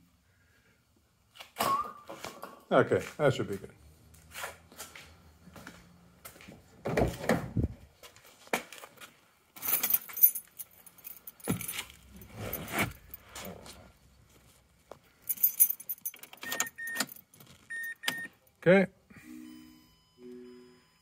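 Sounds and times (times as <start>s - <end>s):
knocks and rustles of movement: 1.3s - 17.9s
keys jangling: 9.6s - 13.4s, 15.2s - 17.9s.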